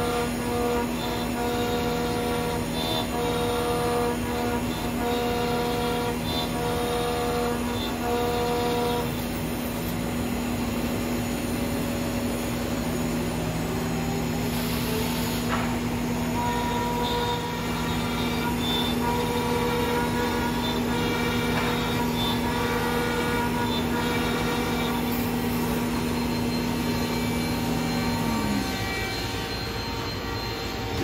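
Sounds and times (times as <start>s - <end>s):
cnc router cutting wood: 0.0s - 31.0s
high-pitched whine: 10.1s - 31.0s.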